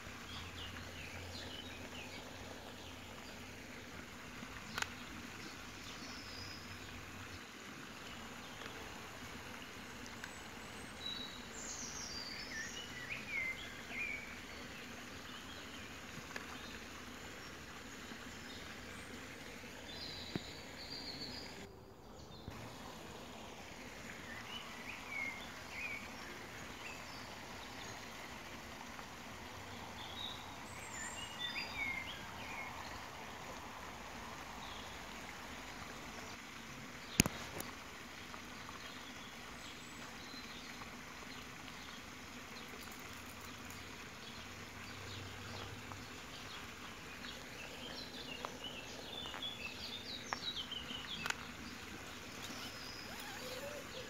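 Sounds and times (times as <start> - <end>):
background hiss: 0.0 - 54.0
birds singing: 30.0 - 33.0, 42.6 - 54.0.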